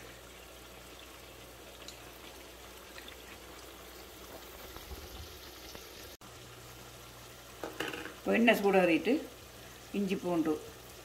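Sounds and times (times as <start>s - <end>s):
oil trickling into a pan: 0.0s - 11.0s.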